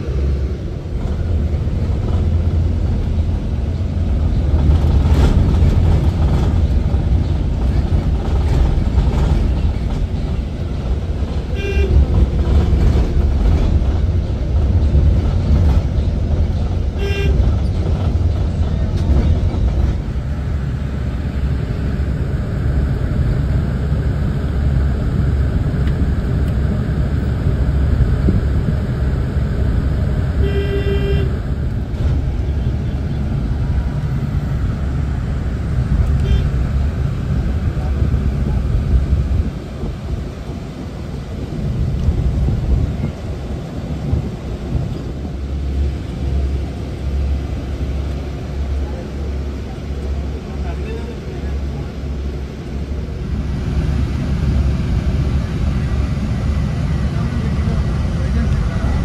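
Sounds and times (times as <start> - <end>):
road and tyre rumble inside bus: 0.0 - 59.0
vehicle horn honking: 11.5 - 12.0, 17.0 - 17.5, 30.4 - 31.4, 36.2 - 36.5.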